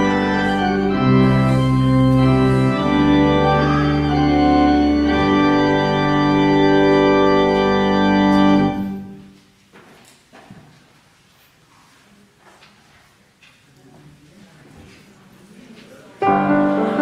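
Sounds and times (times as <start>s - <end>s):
church organ playing a hymn: 0.0s - 9.4s, 16.2s - 17.0s.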